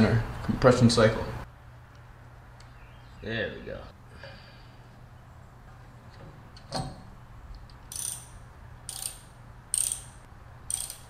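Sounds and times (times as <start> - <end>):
ratchet wrench clicking: 7.8 - 11.0.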